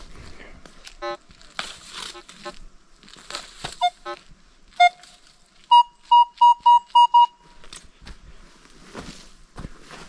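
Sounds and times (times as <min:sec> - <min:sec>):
footsteps walking: 0:00.0 - 0:05.7, 0:07.4 - 0:10.0.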